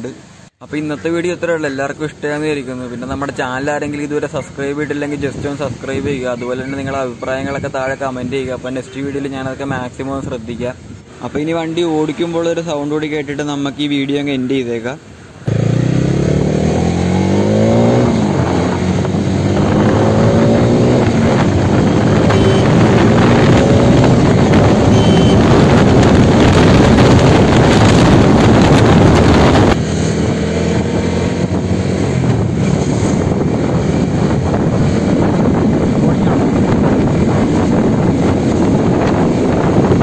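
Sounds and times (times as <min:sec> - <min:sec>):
wind rush on microphone: 0:05.0 - 0:11.1, 0:15.9 - 0:40.0
motorcycle engine revving: 0:15.4 - 0:40.0.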